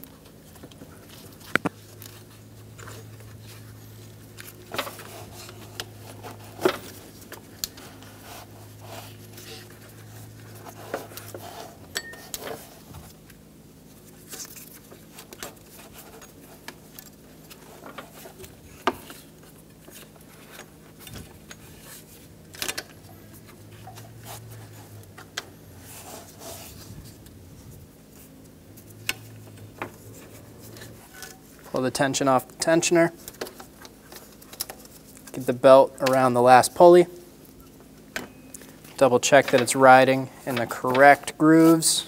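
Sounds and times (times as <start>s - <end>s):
rubber belt rubbing: 25.7s - 31.6s.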